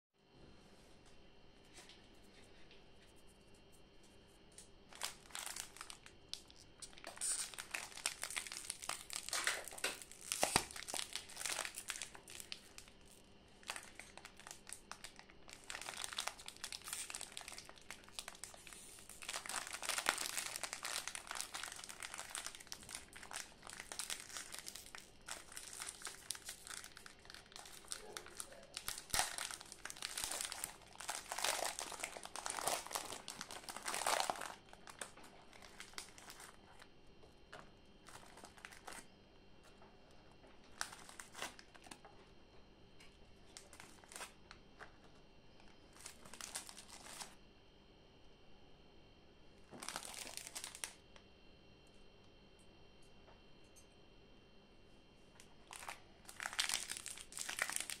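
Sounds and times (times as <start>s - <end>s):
plastic wrapper crinkling: 4.6s - 42.2s, 43.0s - 47.4s, 49.6s - 51.0s, 55.4s - 58.0s.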